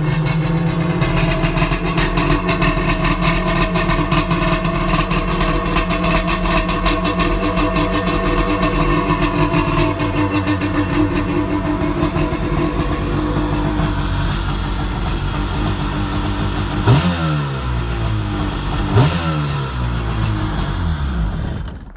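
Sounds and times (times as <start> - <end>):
two-stroke engine idling unevenly: 0.0 - 21.8
engine revs blipped: 1.0 - 21.8.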